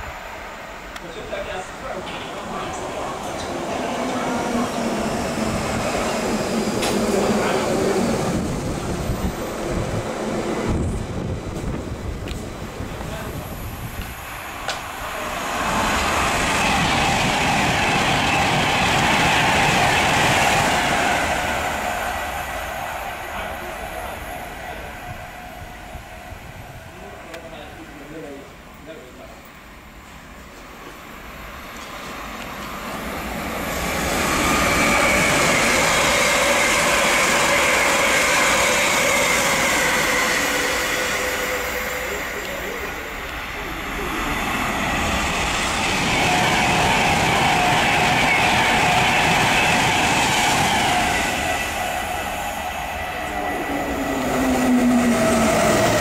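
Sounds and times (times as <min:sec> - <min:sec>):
electric train passing at speed: 0:00.0 - 0:56.0.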